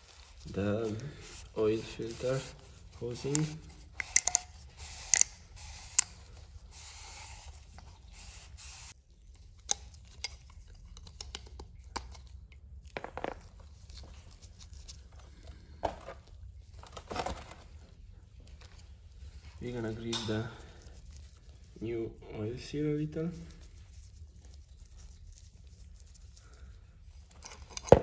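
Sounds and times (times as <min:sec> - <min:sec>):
cloth rag wiping plastic: 0:00.0 - 0:09.0
metal pick clicking and scraping: 0:03.2 - 0:06.2.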